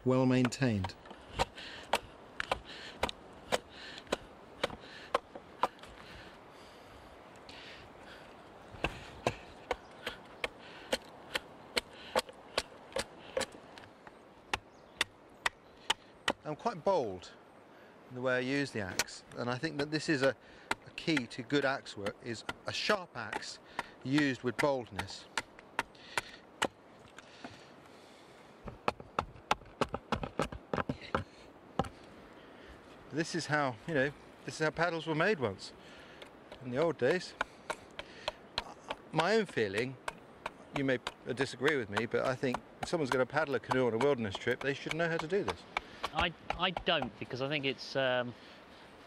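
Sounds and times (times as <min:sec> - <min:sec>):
axe chopping wood: 0:00.3 - 0:05.9, 0:08.8 - 0:13.6, 0:14.5 - 0:16.4, 0:18.9 - 0:26.8, 0:28.6 - 0:32.0, 0:36.2 - 0:47.2.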